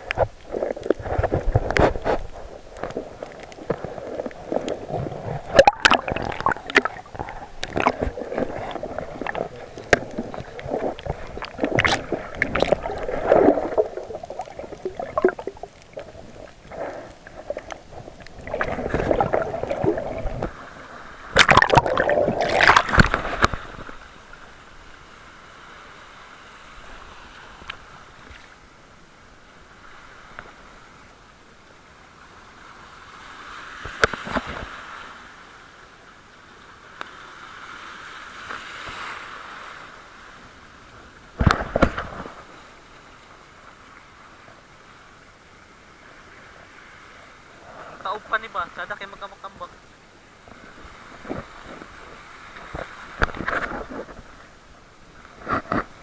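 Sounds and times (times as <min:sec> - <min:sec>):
steady hiss: 0:00.0 - 0:21.4
water surging bursts: 0:00.0 - 0:24.3
water gurgling and sloshing: 0:00.0 - 0:28.8, 0:37.5 - 0:56.0.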